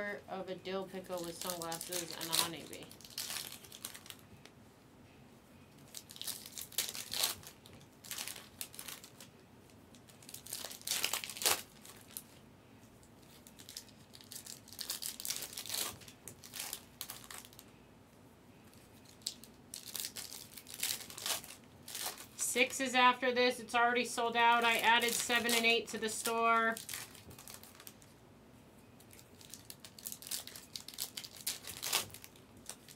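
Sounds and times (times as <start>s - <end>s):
foil wrappers tearing and crinkling: 1.0s - 4.2s, 5.9s - 9.3s, 9.9s - 12.3s, 13.2s - 17.6s, 19.0s - 22.9s, 24.2s - 28.1s, 29.0s - 32.9s.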